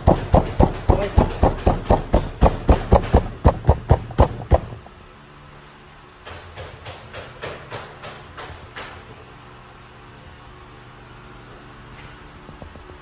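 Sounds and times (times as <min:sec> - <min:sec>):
hand slapping bread dough: 0:00.0 - 0:04.8.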